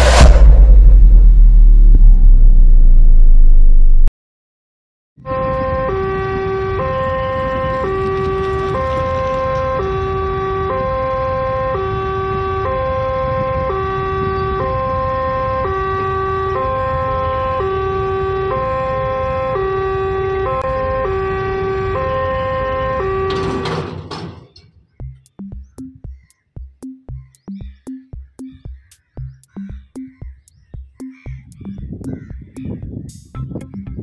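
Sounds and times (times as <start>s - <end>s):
brief noisy rush: 0.0s - 3.9s
level-crossing two-tone hooter: 5.2s - 24.6s
sharp electronic beats: 25.0s - 32.8s.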